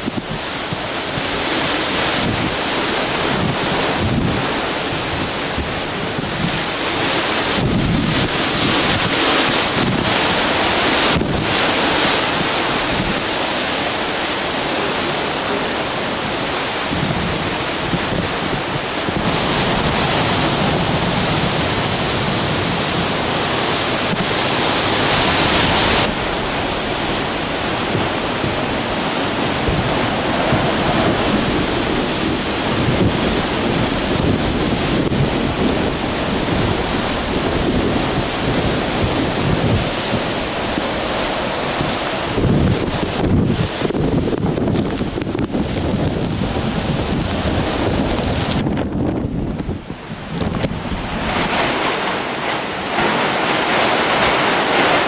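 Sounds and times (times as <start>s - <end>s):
strong wind: 0.0s - 55.0s
wind buffeting microphone: 0.0s - 55.0s
wind-driven rain: 0.0s - 55.0s.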